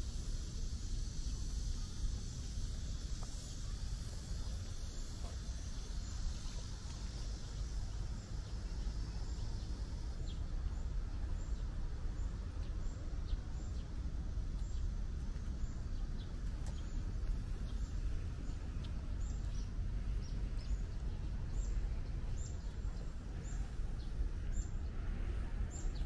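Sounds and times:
cicadas chorus: 0:00.0 - 0:26.0.

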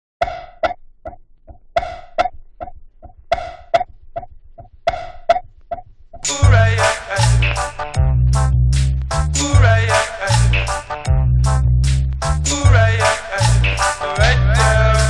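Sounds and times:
looped pitched percussion hits: 0:06.2 - 0:15.0.

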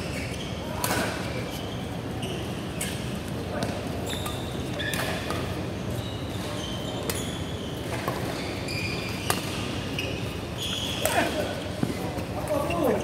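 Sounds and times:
shoes squeaking on court floor: 0:00.0 - 0:13.0
rackets hitting shuttlecock: 0:00.8 - 0:01.3, 0:03.6 - 0:05.6, 0:09.1 - 0:09.8, 0:11.0 - 0:12.6.

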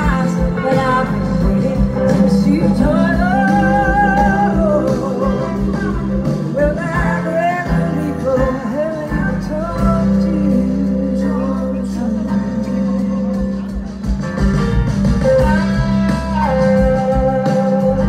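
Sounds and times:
woman singing long held notes: 0:00.0 - 0:13.5
live band playing slow song: 0:00.0 - 0:18.0.

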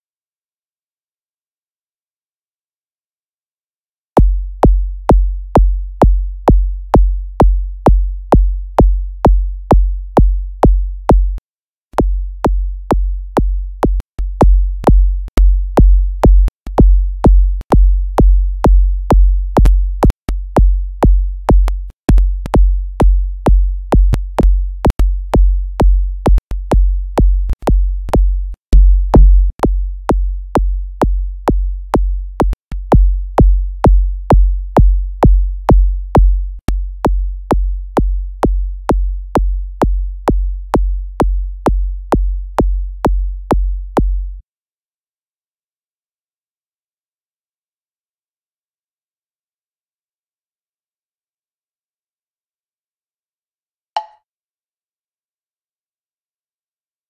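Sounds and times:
synthesized kick drum loop: 0:04.2 - 0:11.4, 0:12.0 - 0:36.4, 0:37.1 - 0:44.3.

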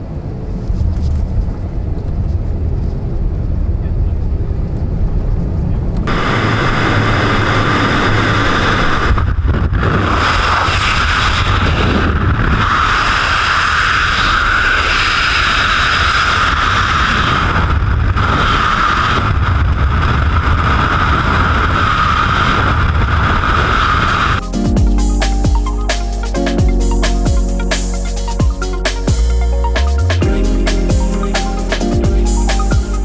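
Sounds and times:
freefall wind roar: 0:00.0 - 0:25.6.

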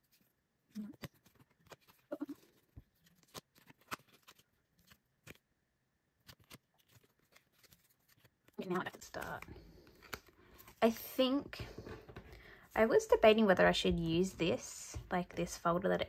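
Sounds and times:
cards clicking and tapping: 0:08.9 - 0:10.3.

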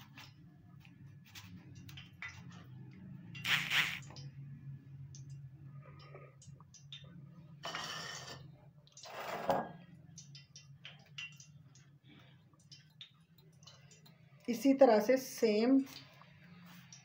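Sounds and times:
low steady hum: 0:00.0 - 0:17.0
wet squelch in egg: 0:03.4 - 0:04.3.

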